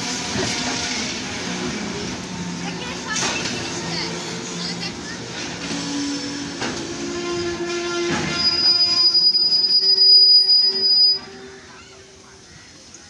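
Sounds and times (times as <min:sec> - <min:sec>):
freight train rolling: 0:00.0 - 0:13.0
piercing steel wheel squeal: 0:05.7 - 0:11.9.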